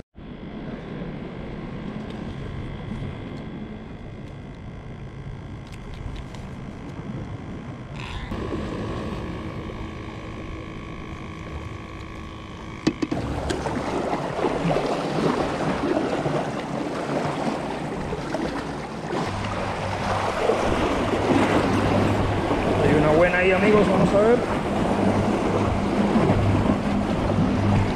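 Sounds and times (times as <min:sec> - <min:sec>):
steady hum of held tones: 0:00.2 - 0:27.9
seawater splashing against rocks: 0:12.8 - 0:27.9.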